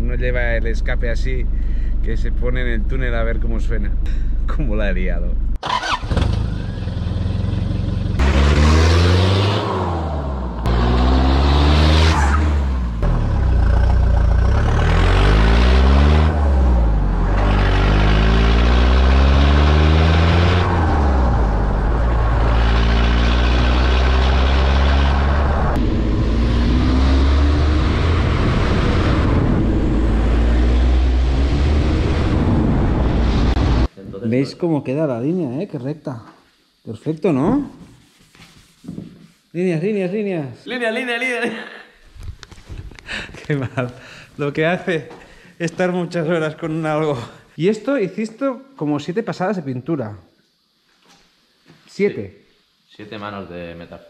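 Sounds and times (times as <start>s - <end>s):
diesel engine accelerating: 5.4s - 33.9s.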